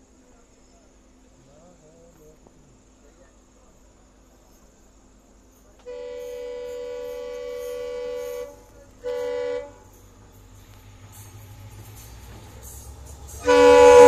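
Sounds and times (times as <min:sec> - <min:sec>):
diesel locomotive horn blasts: 0:05.8 - 0:10.1, 0:12.1 - 0:14.0.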